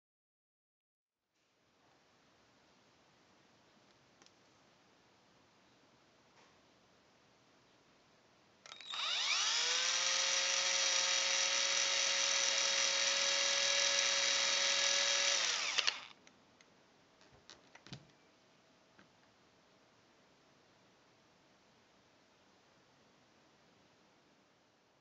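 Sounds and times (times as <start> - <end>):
cordless drill whining: 8.7 - 16.2.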